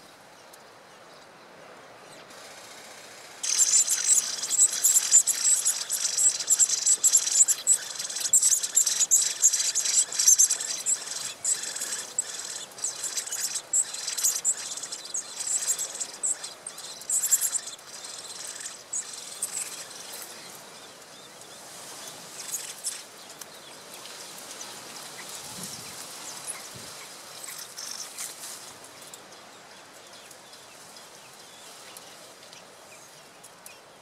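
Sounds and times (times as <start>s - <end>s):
nestlings begging calls: 3.4s - 20.0s.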